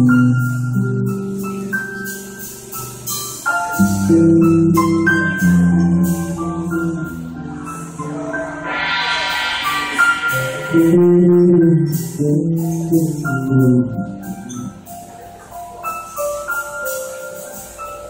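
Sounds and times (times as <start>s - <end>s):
piano notes: 0.0s - 18.0s
electric bass: 3.8s - 14.8s.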